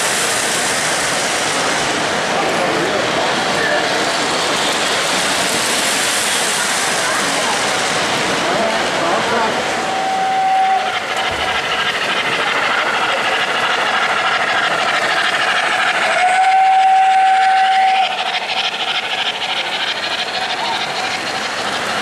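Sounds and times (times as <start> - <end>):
model train running on track: 0.0 - 22.0
steam chuffing hiss: 0.0 - 22.0
model train steam whistle: 9.8 - 11.0, 16.0 - 18.2.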